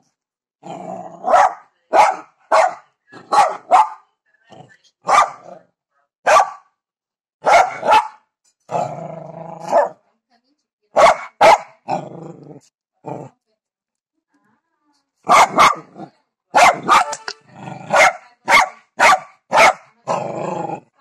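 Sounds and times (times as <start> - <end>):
dog growling: 0.6 - 1.4, 4.5 - 4.8, 8.7 - 10.0, 11.8 - 13.4, 17.4 - 18.2, 20.0 - 21.0
dog barking: 1.2 - 4.1, 5.0 - 5.6, 6.2 - 6.8, 7.4 - 8.3, 9.6 - 10.0, 10.9 - 12.0, 15.2 - 17.2, 17.8 - 20.0.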